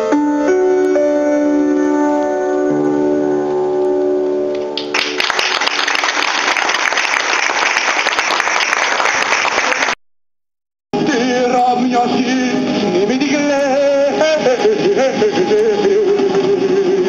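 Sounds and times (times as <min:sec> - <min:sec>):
held keyboard chord: 0:00.0 - 0:05.4
audience applauding: 0:04.8 - 0:10.0
singing with instrumental music: 0:11.0 - 0:17.0.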